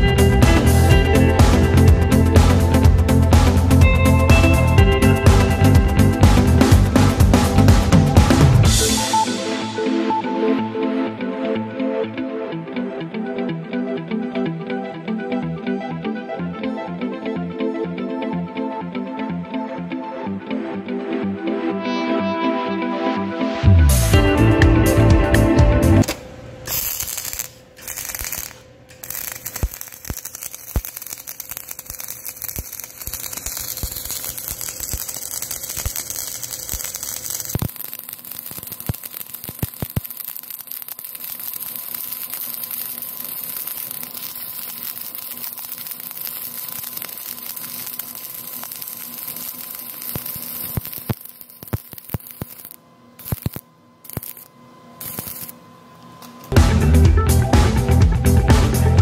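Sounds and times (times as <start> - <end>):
welding arc crackling: 0.0 - 9.3, 26.0 - 55.6.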